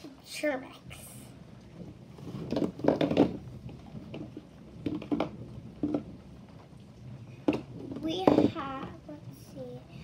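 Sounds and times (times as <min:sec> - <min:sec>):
plastic bottles rattling together: 0:02.3 - 0:06.2.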